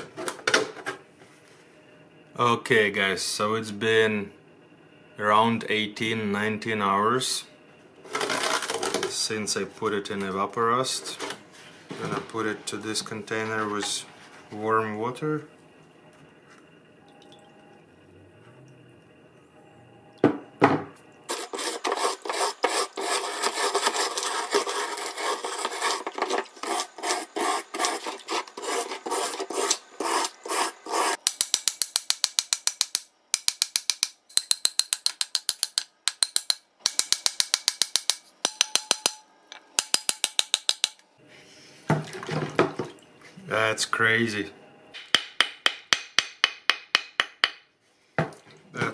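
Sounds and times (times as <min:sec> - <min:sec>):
wire brush scrubbing metal: 0:21.3 - 0:31.2.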